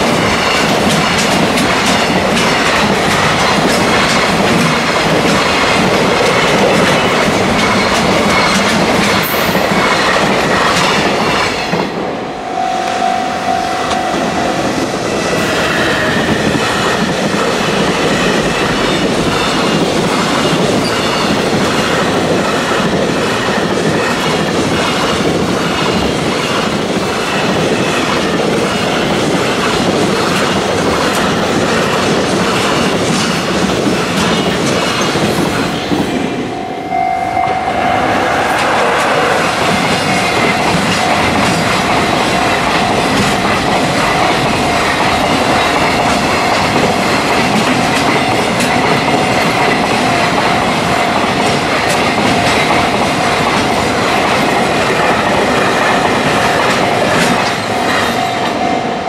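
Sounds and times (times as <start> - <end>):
freight train wheels clattering: 0.0 - 12.7, 13.4 - 36.7, 37.4 - 59.0
steady high ringing tone: 12.1 - 19.6, 36.4 - 46.3.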